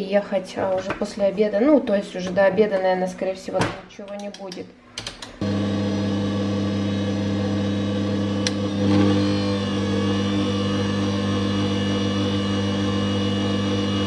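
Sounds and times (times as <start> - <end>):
stand mixer motor humming: 5.4 - 14.0.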